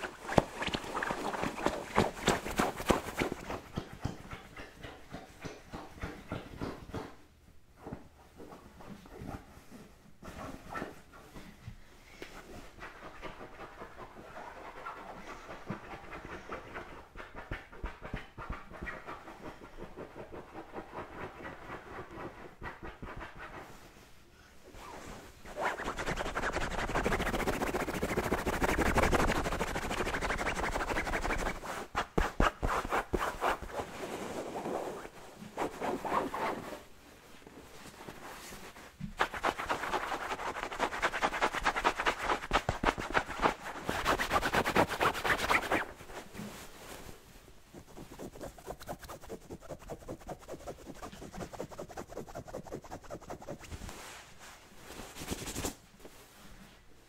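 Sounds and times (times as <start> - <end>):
fingernails scratching fabric: 25.5 - 36.8, 47.8 - 53.7.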